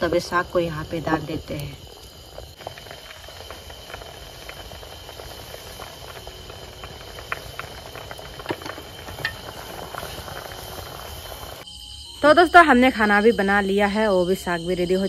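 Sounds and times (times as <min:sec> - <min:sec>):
water boiling with popping: 0:00.0 - 0:11.6.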